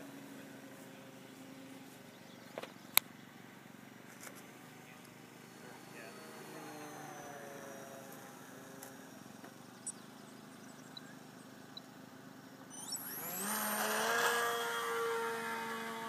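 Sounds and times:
model plane motor whine: 0:04.2 - 0:16.0.

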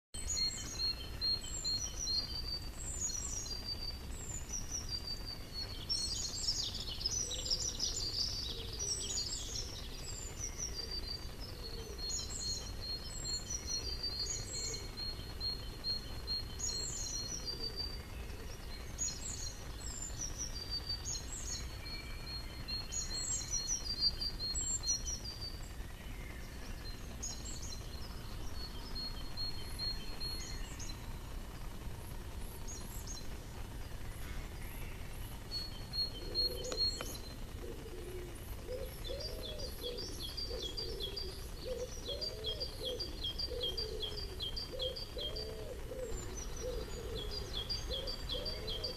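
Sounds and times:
songbirds singing with trills: 0:00.2 - 0:48.9.

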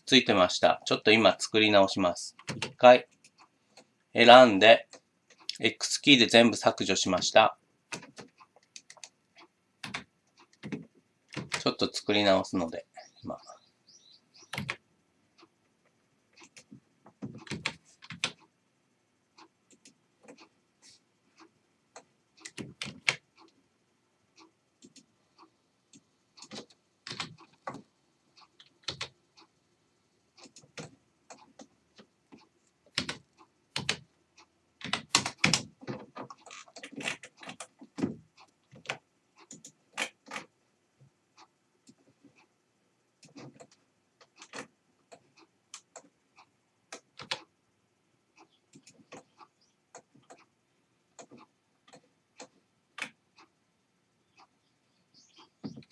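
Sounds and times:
keyboard keys clicking: 0:26.4 - 0:27.8.

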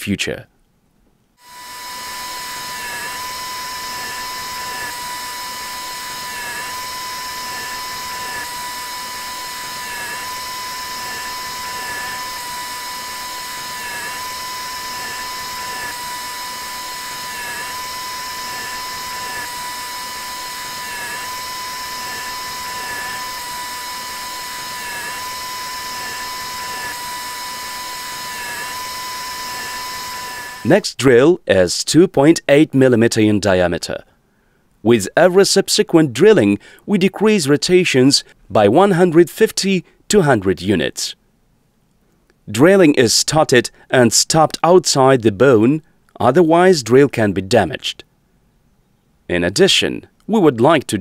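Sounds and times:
dental drill whining: 0:01.4 - 0:30.9.

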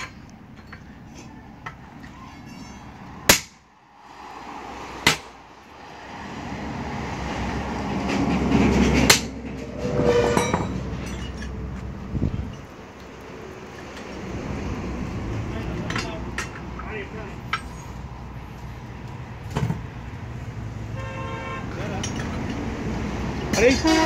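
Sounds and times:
steel tools clanking on wheel rim: 0:00.0 - 0:03.6, 0:08.0 - 0:12.7, 0:15.6 - 0:18.1, 0:21.7 - 0:22.7, 0:23.4 - 0:24.0
heavy truck passing: 0:00.0 - 0:24.0.

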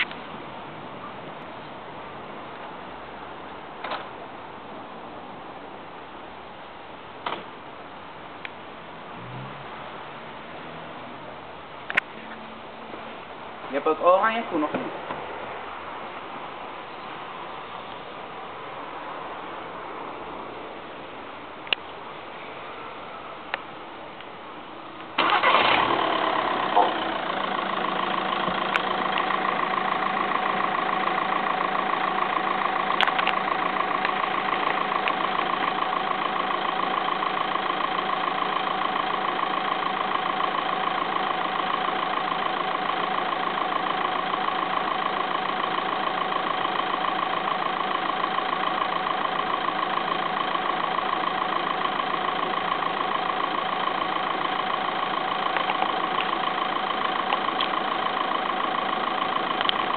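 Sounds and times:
car engine starting and idling: 0:25.0 - 0:59.9.

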